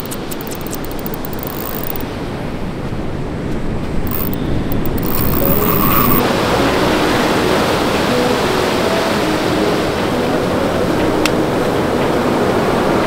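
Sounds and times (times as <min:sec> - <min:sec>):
wind rumbling on microphone: 0:00.0 - 0:08.2
wind: 0:00.0 - 0:13.0.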